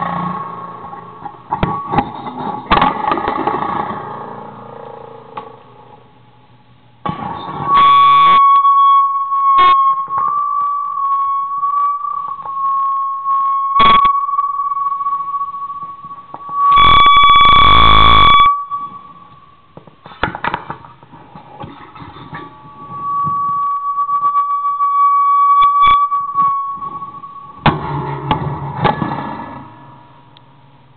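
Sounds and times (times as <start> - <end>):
high wavering whining tone: 7.2 - 19.8, 22.3 - 27.7
loud distorted blasts: 16.7 - 18.6.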